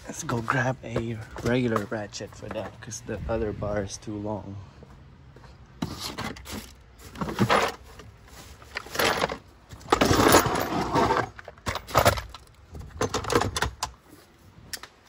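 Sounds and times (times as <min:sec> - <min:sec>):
metal tools clattering in toolboxes: 0:08.7 - 0:13.9.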